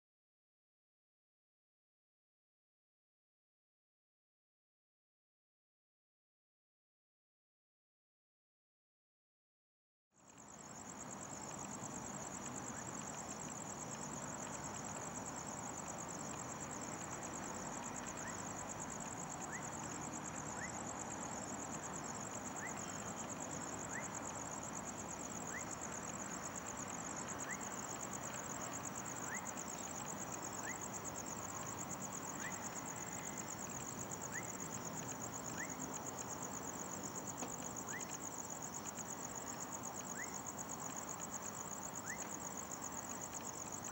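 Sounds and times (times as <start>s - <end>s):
night insects chirring: 10.2s - 43.9s.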